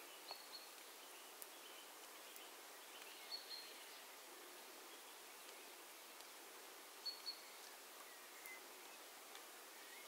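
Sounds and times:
faint bird chirps: 0.0s - 5.8s, 7.0s - 10.0s.

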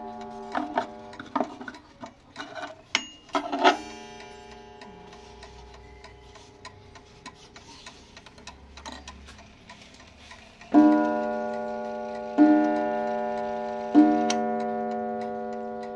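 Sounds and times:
clock hammer striking wire gong: 0.0s - 1.9s, 2.9s - 6.1s, 10.7s - 15.9s
pendulum clock ticking: 0.0s - 15.9s.

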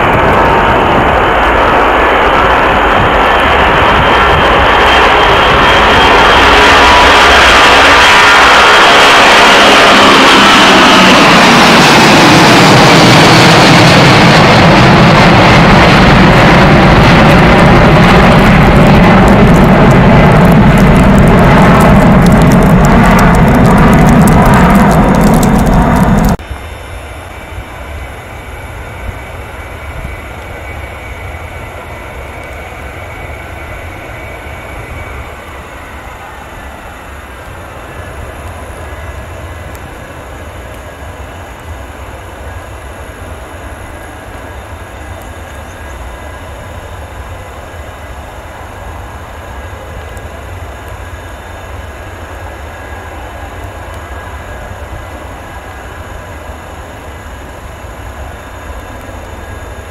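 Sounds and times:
jet engines rumbling: 0.0s - 59.9s
faint high whine: 26.4s - 59.9s.

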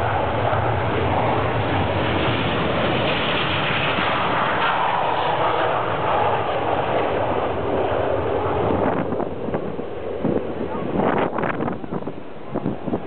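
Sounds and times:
jet engines taking off: 0.0s - 13.0s.

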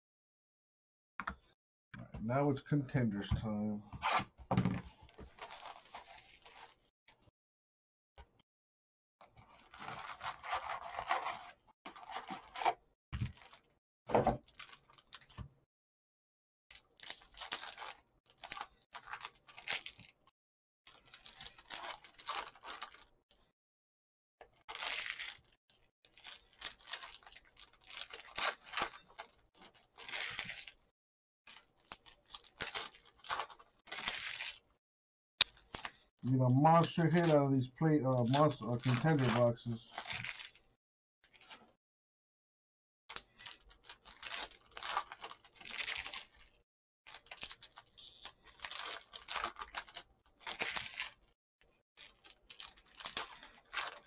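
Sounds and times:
foil packs crinkling and tearing: 5.1s - 6.8s, 9.4s - 13.7s, 14.4s - 15.4s, 16.7s - 20.2s, 20.9s - 23.1s, 24.6s - 30.8s, 31.5s - 34.8s, 35.5s - 40.6s, 43.1s - 51.3s, 52.0s - 54.0s.

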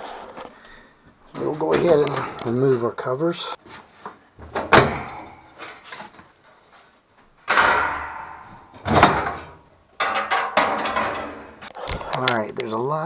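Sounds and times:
metal panel clattering: 7.5s - 11.7s.

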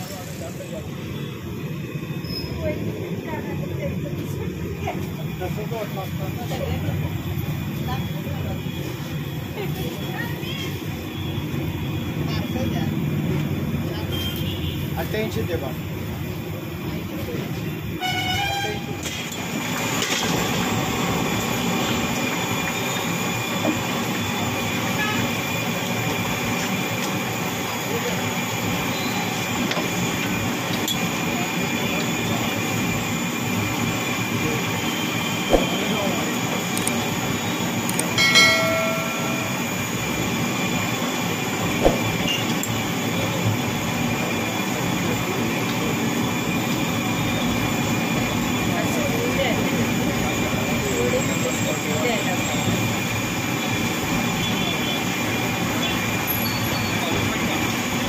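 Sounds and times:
road traffic rumble: 0.0s - 58.0s
loud rushing noise: 35.0s - 36.5s, 38.6s - 42.4s
ringing metallic tone: 38.1s - 40.5s.

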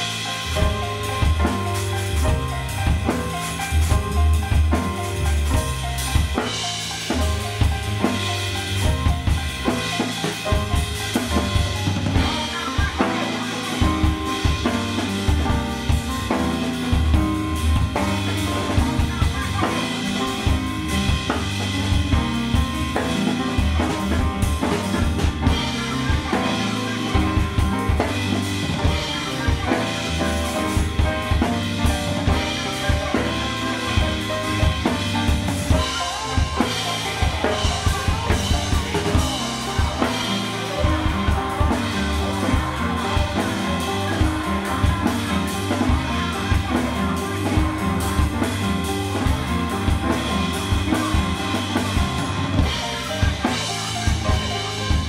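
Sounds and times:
drum kit playing: 0.0s - 55.0s.

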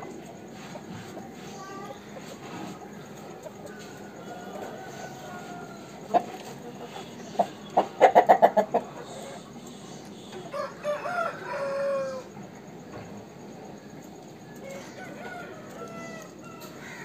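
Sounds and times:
rooster clucking: 0.4s - 12.4s
rooster crowing: 3.5s - 6.1s, 10.3s - 12.4s, 14.5s - 17.0s.

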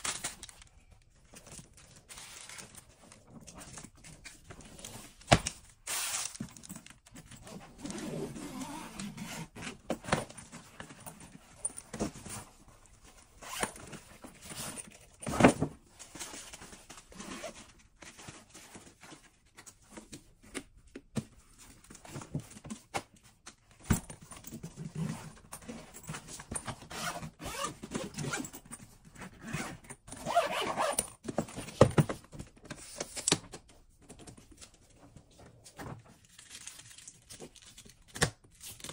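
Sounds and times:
zippers being run: 26.9s - 28.5s, 29.4s - 31.1s.

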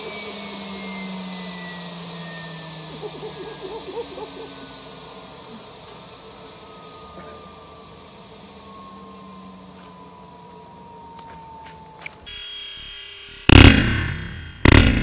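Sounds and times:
turbine whine falling in pitch: 0.0s - 15.0s.

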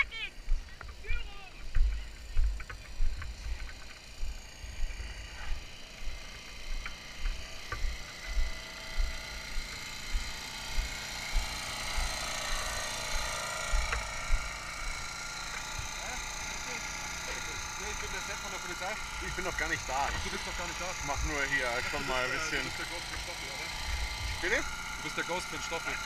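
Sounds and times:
footsteps walking: 0.0s - 12.1s
mechanical drone with high whine: 0.0s - 26.0s.

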